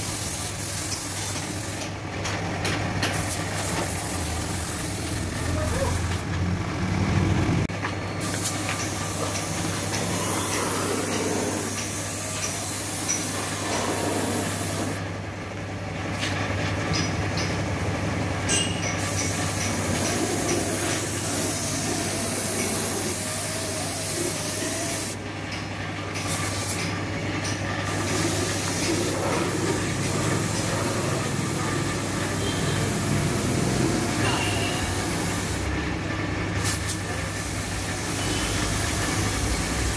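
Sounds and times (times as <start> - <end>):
paint spray gun hissing: 0.0 - 1.8, 3.1 - 6.2, 8.2 - 15.0, 19.0 - 25.2, 26.2 - 26.8, 27.8 - 29.2, 29.8 - 35.7.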